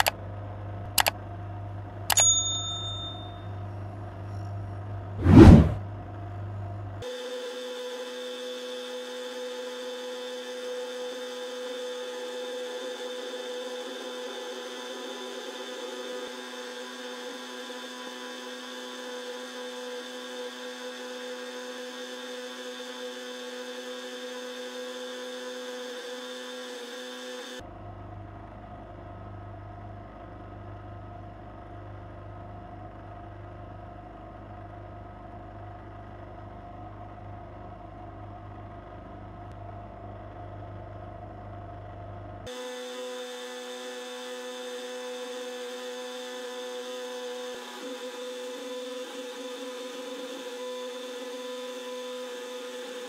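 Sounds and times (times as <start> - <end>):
bench grinder motor whine: 7.0 - 27.6, 42.5 - 53.0.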